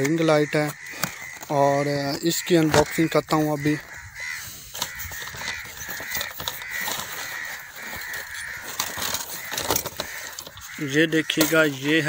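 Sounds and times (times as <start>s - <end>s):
bird calling: 0.0s - 12.0s
cardboard packaging rustling: 4.2s - 12.0s.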